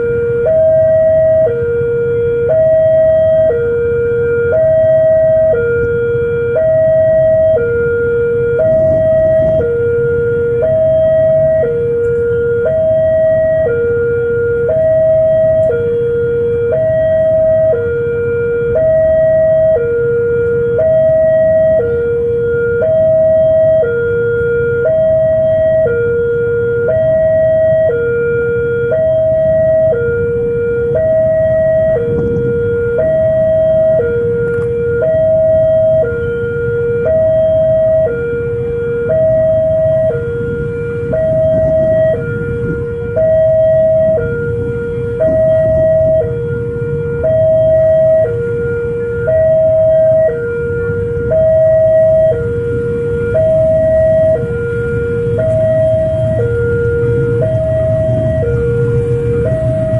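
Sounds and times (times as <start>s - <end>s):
two-tone crossing alarm: 0.0s - 59.9s.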